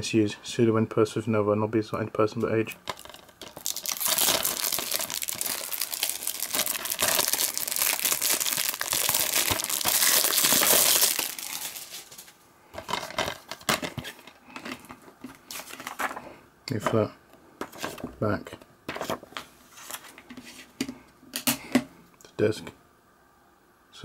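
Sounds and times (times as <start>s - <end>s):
shrink wrap crinkling: 2.5s - 16.3s.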